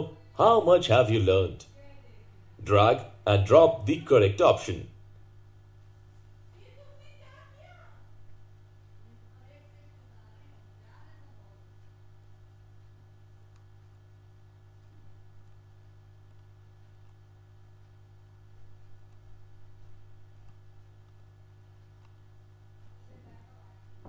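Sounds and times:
steady low hum: 0.0s - 24.0s
faint clicks: 11.8s - 18.0s, 18.8s - 19.3s, 20.3s - 23.5s.

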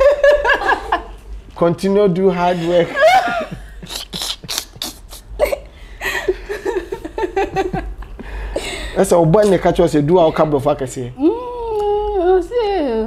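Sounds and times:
woman and man laughing: 2.5s - 9.0s, 10.1s - 10.7s.

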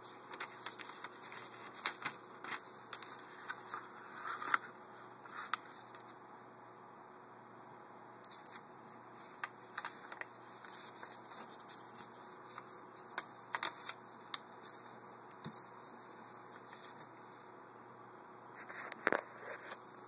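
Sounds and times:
paper rustling and crinkling: 0.0s - 6.2s, 9.2s - 17.2s, 18.6s - 20.0s.

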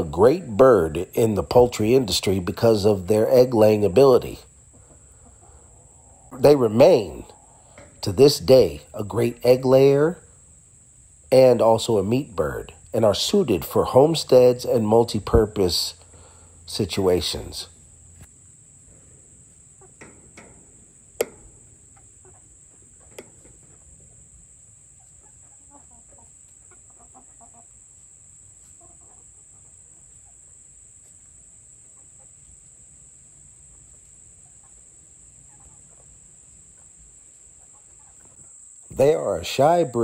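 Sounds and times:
chickens clucking softly: 4.6s - 6.5s, 21.4s - 24.2s, 24.9s - 32.7s, 33.3s - 38.5s.

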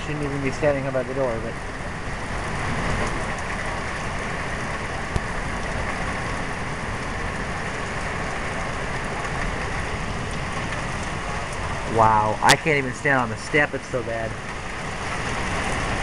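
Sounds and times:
heavy rain pouring: 0.0s - 16.0s.

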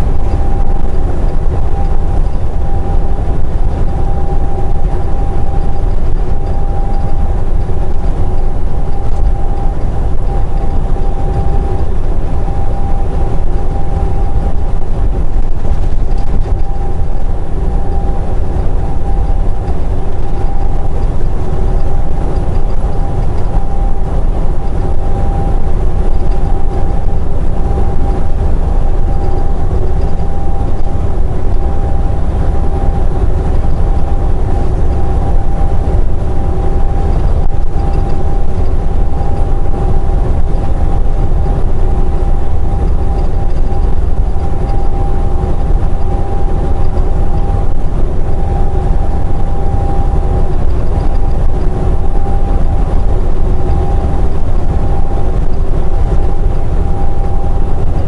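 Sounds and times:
faint steady whine: 0.0s - 58.0s
truck engine and road rumble: 0.0s - 58.0s.

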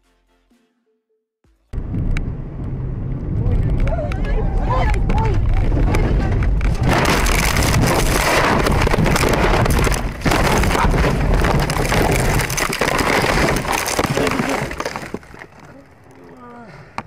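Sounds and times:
car crash crashing and scraping: 6.7s - 15.4s.

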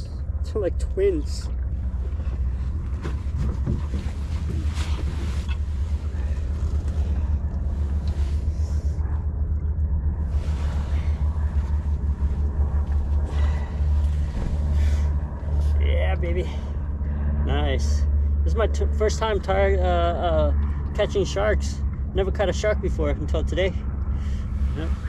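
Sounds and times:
wind buffeting microphone: 0.0s - 17.4s.

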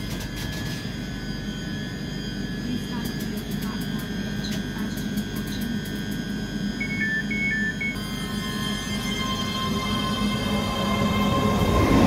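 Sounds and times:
high whines: 6.7s - 12.0s
two-tone beeping: 6.8s - 11.5s
train traction hum: 6.8s - 12.0s.

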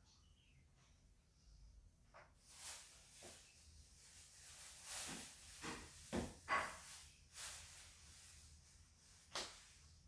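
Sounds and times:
material rustling: 2.4s - 9.8s.

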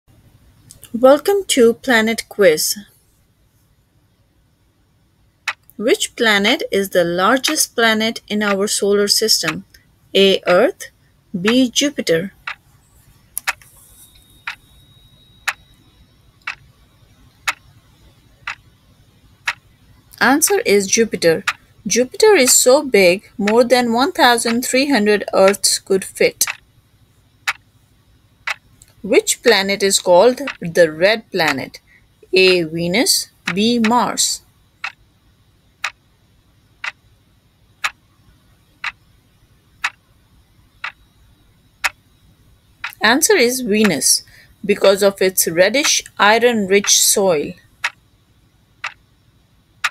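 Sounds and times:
clock ticking: 5.4s - 6.7s, 7.4s - 12.6s, 13.4s - 18.8s, 19.4s - 26.7s, 27.4s - 27.7s, 28.4s - 35.0s, 35.7s - 36.1s, 36.7s - 37.0s, 37.7s - 39.1s, 39.8s - 40.0s, 40.8s - 41.1s, 41.8s - 42.0s, 42.8s - 47.2s, 47.8s - 48.1s, 48.8s - 49.2s.

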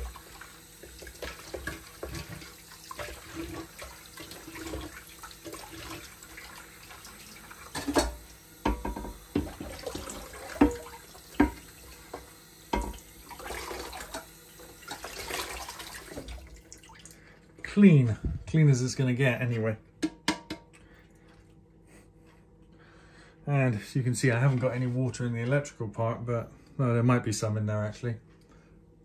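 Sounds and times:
tap water splashing: 0.0s - 17.2s.

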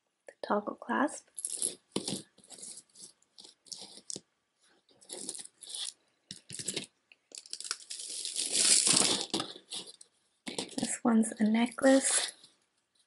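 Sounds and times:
beads clicking and rattling: 1.4s - 4.2s, 5.1s - 10.9s
rustling: 1.4s - 11.0s.

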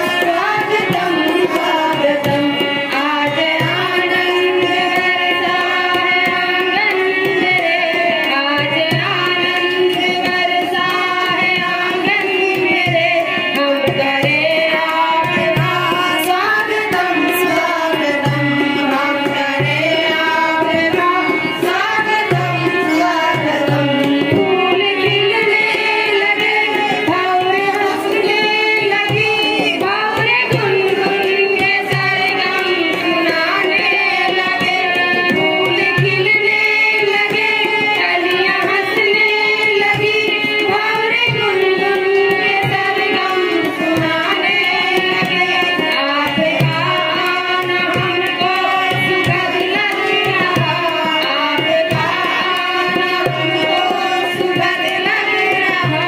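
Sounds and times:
hand drum beat: 0.0s - 4.3s
women singing together: 0.0s - 56.0s.

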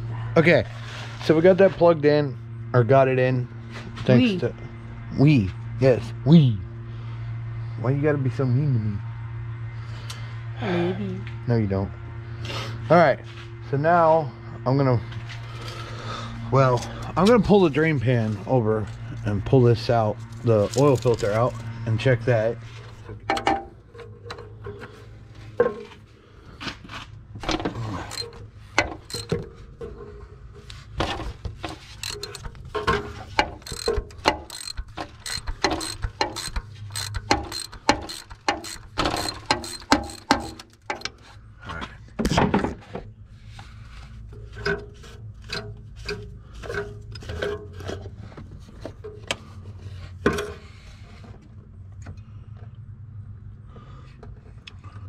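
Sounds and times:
steady low hum: 0.0s - 55.0s
ratchet wrench clicking: 27.9s - 29.4s, 31.8s - 41.2s.

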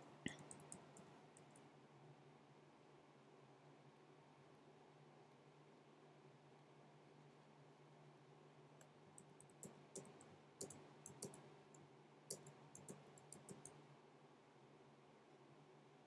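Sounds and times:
low steady hum: 0.0s - 2.7s
faint computer input clicks: 0.2s - 1.6s, 8.8s - 11.5s, 12.3s - 13.8s.

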